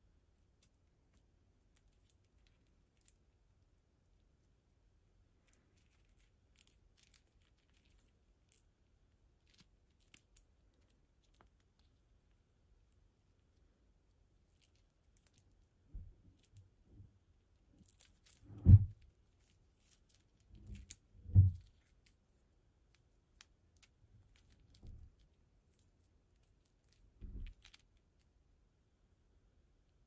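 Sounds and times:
bracelet handling thumps and rubs: 0:18.0 - 0:22.0, 0:27.2 - 0:27.8.

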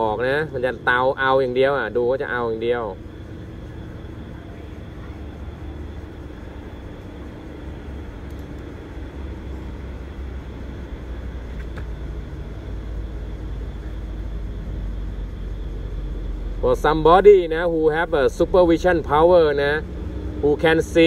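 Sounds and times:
faint ticks: 0:08.2 - 0:08.7.

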